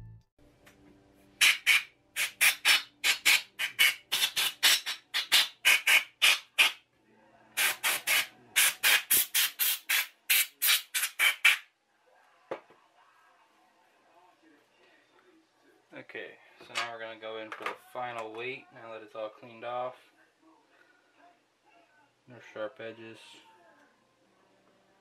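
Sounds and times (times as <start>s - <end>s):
compressed air blasts: 1.4s - 6.7s.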